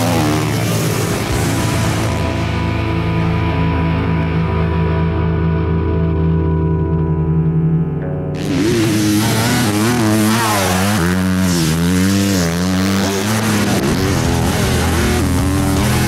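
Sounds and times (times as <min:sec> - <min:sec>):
dirt bike engine revving: 0:00.0 - 0:03.5, 0:08.3 - 0:16.0.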